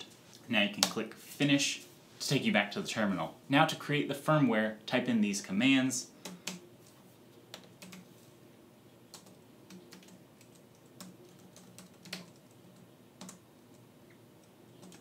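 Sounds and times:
laptop keyboard typing: 0:06.2 - 0:06.7, 0:07.5 - 0:08.1, 0:09.1 - 0:15.0.

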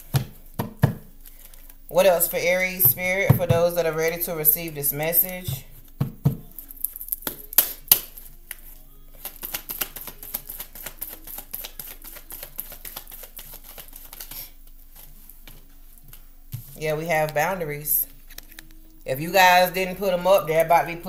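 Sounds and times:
cards being shuffled: 0:01.2 - 0:01.8, 0:05.8 - 0:17.4, 0:18.1 - 0:18.9.

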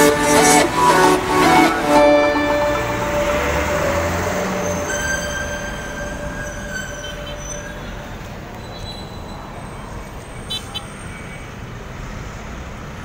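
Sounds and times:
high-pitched tones: 0:00.0 - 0:08.8
city road traffic: 0:00.0 - 0:13.0.

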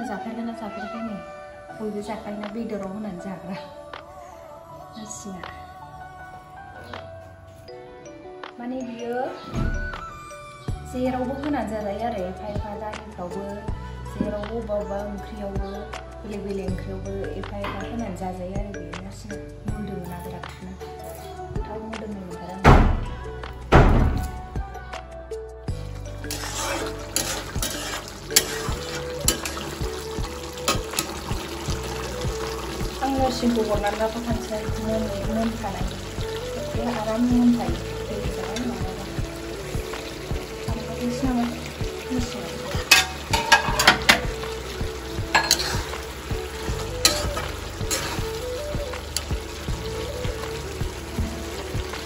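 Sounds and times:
steady sizzle: 0:25.7 - 0:52.0
metal ladle scraping a pan: 0:26.0 - 0:32.7, 0:42.7 - 0:44.6, 0:45.3 - 0:49.3.

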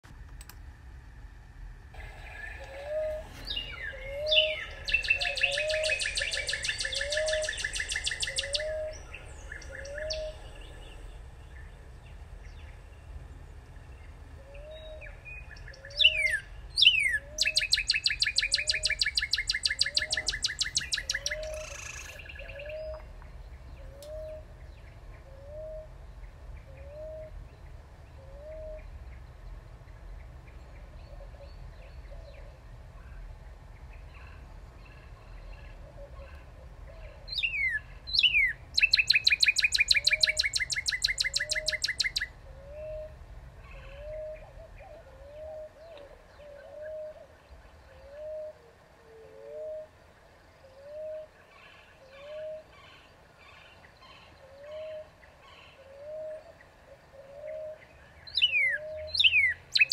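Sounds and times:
bird whistles and rapid trill: 0:02.9 - 0:08.9, 0:16.0 - 0:22.2, 0:37.4 - 0:42.3, 0:58.4 - 0:59.9.

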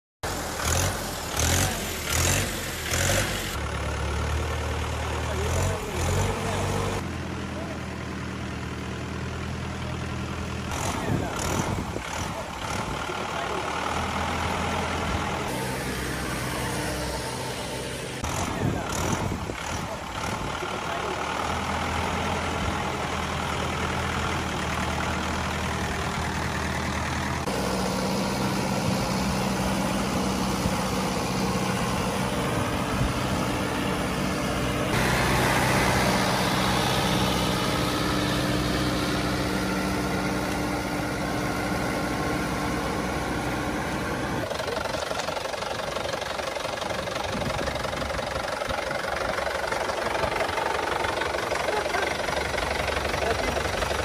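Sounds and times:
tractor diesel engine running: 0:00.2 - 0:54.0.

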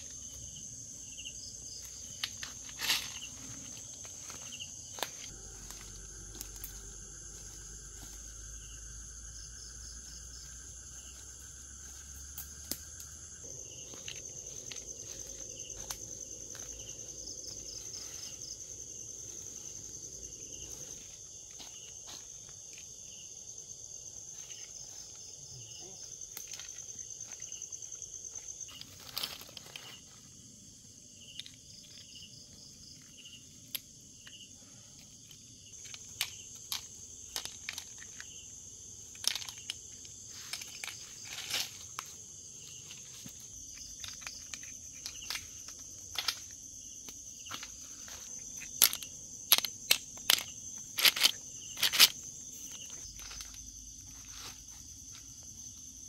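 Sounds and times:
insects chirring: 0:00.0 - 0:56.0
crunches and rustles: 0:01.6 - 0:08.4, 0:35.0 - 0:55.8.

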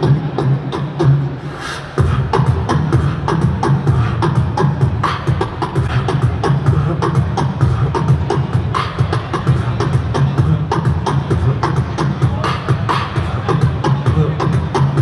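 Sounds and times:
person beatboxing: 0:00.0 - 0:15.0.

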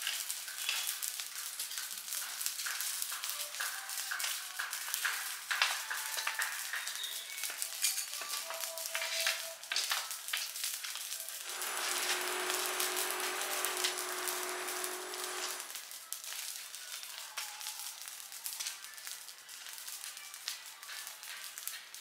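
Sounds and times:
fire crackling and popping: 0:00.0 - 0:08.1, 0:08.8 - 0:22.0
steady hiss with low hum: 0:11.5 - 0:15.8.

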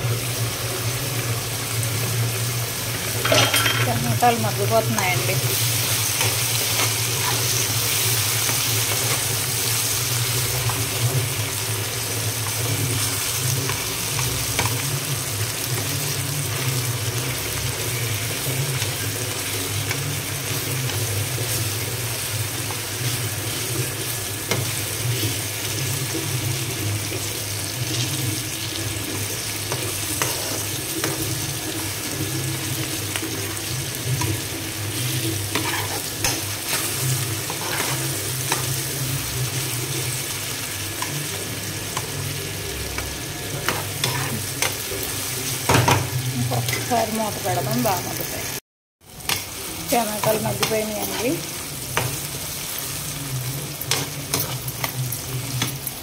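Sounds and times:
vegetables sizzling in hot oil: 0:00.0 - 0:56.0
steel spoon scraping pan: 0:29.8 - 0:31.3, 0:35.4 - 0:38.8, 0:43.6 - 0:44.8.

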